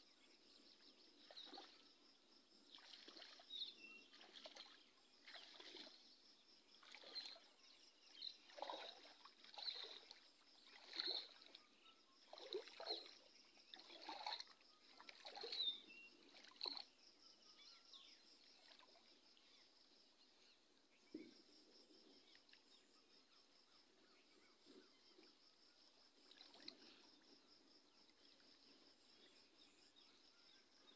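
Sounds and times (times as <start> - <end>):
shallow water splashing: 1.2 - 1.9, 2.7 - 11.6, 12.2 - 17.0, 26.2 - 27.3.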